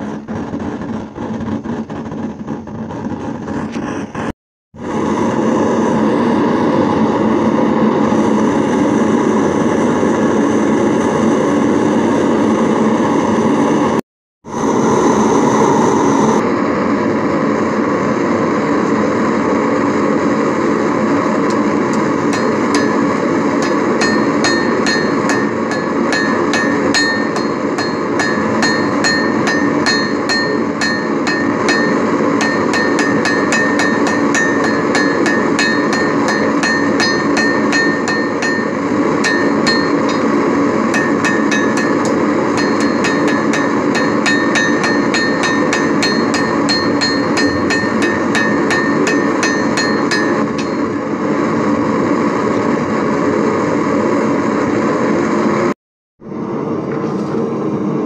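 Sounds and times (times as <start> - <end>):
steady background noise: 14.5 - 55.6
hammer striking steel on anvil: 21.5 - 51.1.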